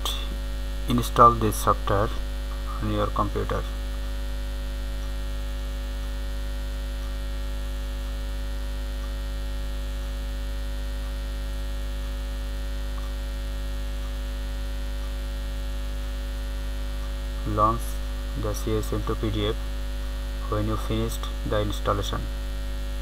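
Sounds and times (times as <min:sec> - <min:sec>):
electrical mains hum: 0:00.0 - 0:23.0.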